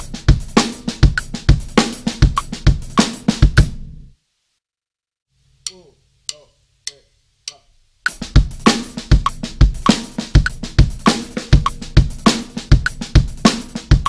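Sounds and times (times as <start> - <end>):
drum-kit groove: 0.0 - 4.0, 5.7 - 14.0
sharp count-in clicks: 5.6 - 8.2.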